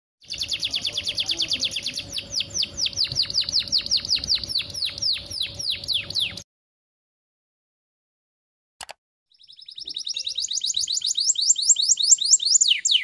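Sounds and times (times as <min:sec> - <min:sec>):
canary trilling: 0:00.2 - 0:06.4, 0:09.3 - 0:13.0.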